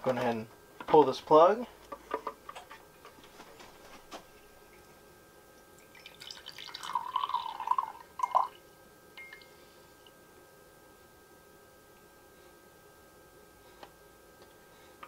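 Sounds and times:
water trickling into glass cup: 5.7s - 8.6s.

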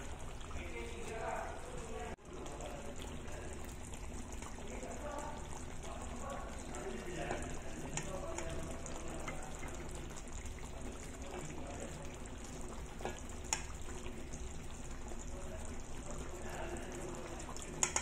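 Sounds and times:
fish sizzling in a wok: 12.8s - 18.0s.

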